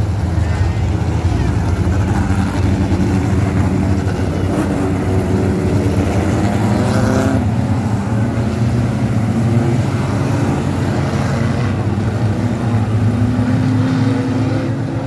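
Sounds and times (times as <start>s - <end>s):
race car engines running: 0.0s - 15.0s
engine revving: 1.4s - 15.0s.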